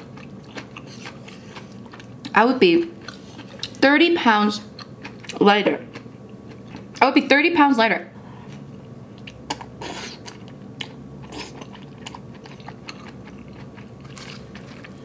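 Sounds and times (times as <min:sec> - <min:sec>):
person chewing and slurping noodles: 0:00.0 - 0:02.1, 0:03.0 - 0:03.8, 0:08.4 - 0:15.0.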